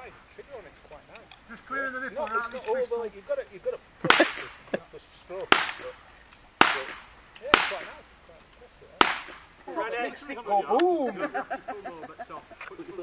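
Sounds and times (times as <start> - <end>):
rifle gunshots: 4.1 - 4.6, 5.5 - 6.0, 6.6 - 8.1, 9.0 - 9.5.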